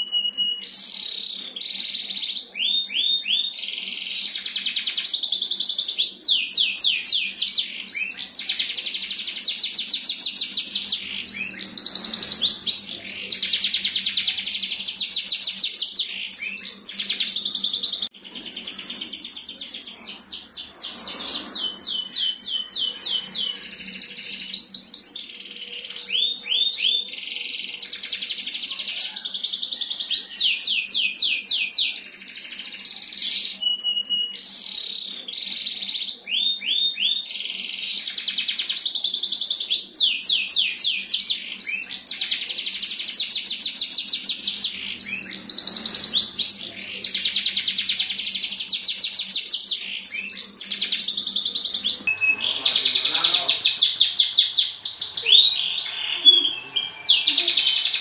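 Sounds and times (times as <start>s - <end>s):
canary singing: 0.0s - 58.0s.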